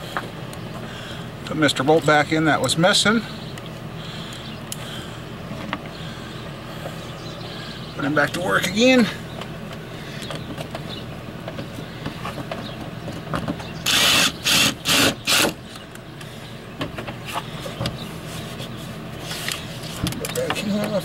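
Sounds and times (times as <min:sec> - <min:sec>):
cordless driver running: 0:13.8 - 0:16.0.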